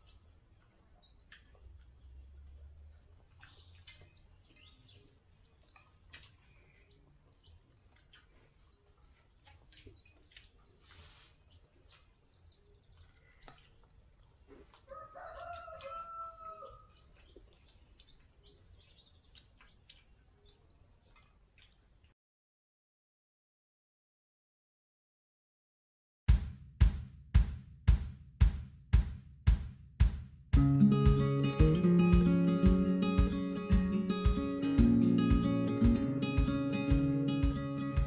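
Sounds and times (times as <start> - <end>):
rooster crowing: 14.8 - 17.0.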